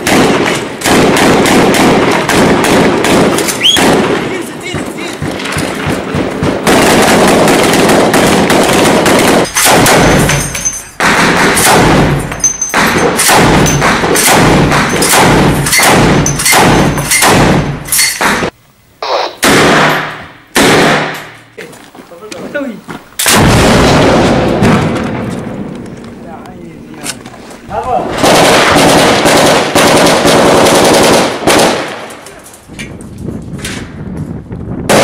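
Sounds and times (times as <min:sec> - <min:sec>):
rifle gunfire: 0:00.0 - 0:18.5, 0:19.1 - 0:21.3, 0:23.2 - 0:25.7, 0:28.1 - 0:32.2
machine gun bursts: 0:28.2 - 0:31.8.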